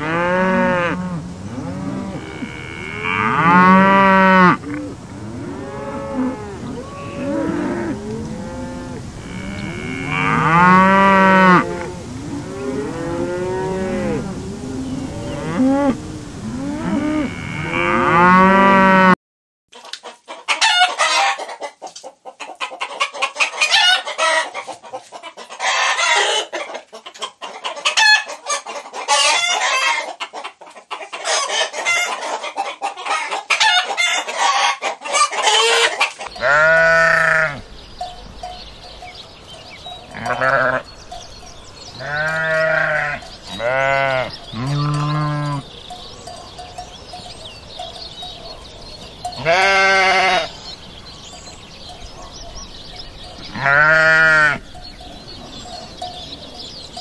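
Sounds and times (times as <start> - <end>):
cows mooing: 0.0 - 19.2, 36.3 - 37.7, 40.1 - 40.9, 42.0 - 46.8, 49.3 - 50.6, 53.5 - 54.8
hens clucking and squawking: 0.0 - 57.0
sheep bleating: 36.4 - 37.6, 40.1 - 40.9, 42.0 - 45.6, 49.4 - 50.5, 53.5 - 54.6.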